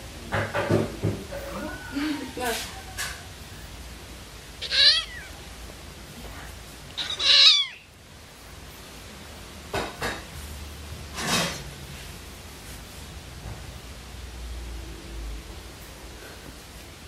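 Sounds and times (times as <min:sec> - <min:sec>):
kittens meowing: 0:04.6 - 0:05.6, 0:06.9 - 0:08.0.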